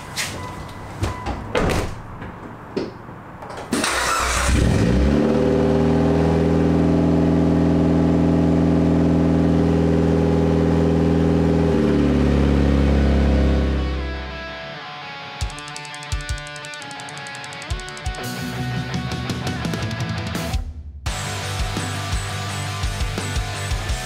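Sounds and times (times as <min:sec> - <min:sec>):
car engine starting and idling: 0:03.6 - 0:14.3.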